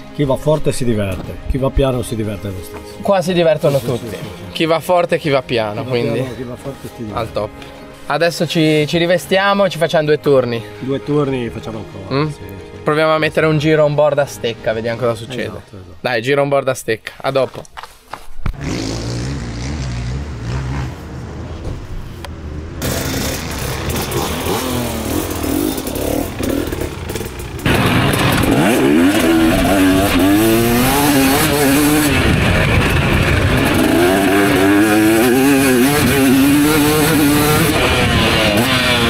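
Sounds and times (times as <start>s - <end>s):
motocross bike engines revving: 18.5s - 21.5s, 22.3s - 39.0s.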